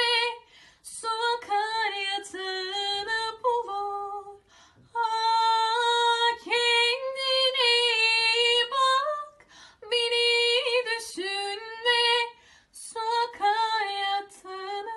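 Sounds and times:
woman singing unaccompanied: 0.0 - 14.9
woman breathing: 0.4 - 0.9, 4.4 - 4.9, 9.4 - 9.8, 12.4 - 12.8.

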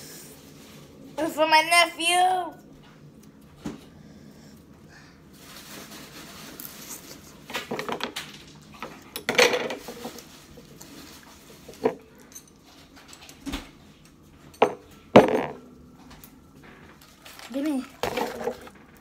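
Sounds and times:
utensils clinking against a bowl: 8.8 - 13.4, 14.4 - 15.8, 17.0 - 19.0.

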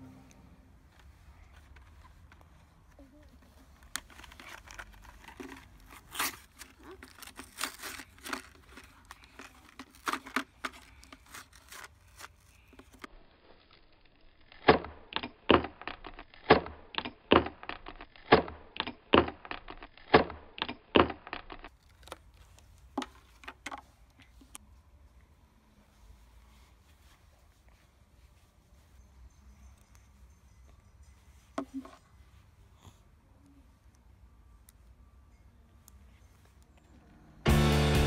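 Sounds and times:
plastic packaging crackling and tearing: 3.8 - 16.5, 21.3 - 22.9.

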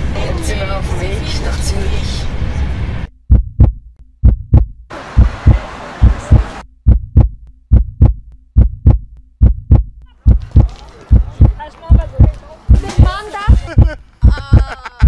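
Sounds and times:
noisy background: 0.0 - 7.0, 10.2 - 14.8
heartbeat thumps: 3.1 - 14.8.

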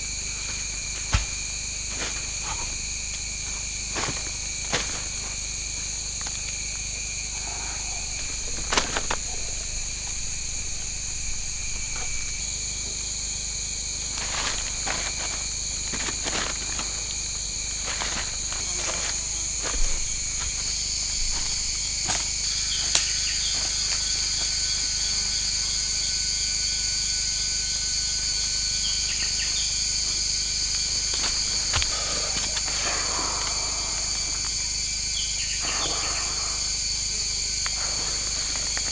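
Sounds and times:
forest insects buzzing: 0.0 - 38.9
footsteps crackling in dry leaves: 8.1 - 24.6.

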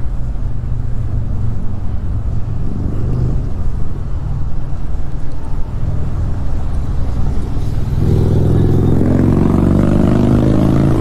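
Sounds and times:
wind rumble on microphone: 0.0 - 11.0
motorcycle engine running: 6.6 - 11.0.

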